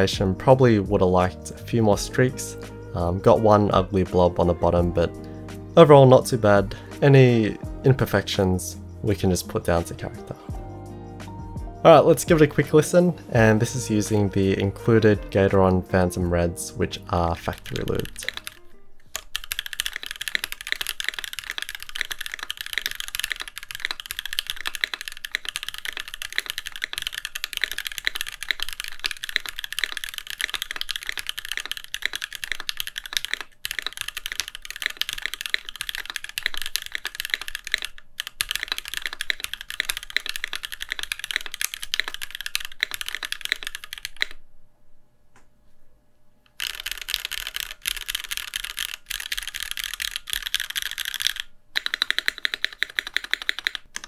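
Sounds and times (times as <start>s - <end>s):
fast mechanical keyboard typing: 3.0s - 5.0s, 17.2s - 44.4s, 46.6s - 54.0s.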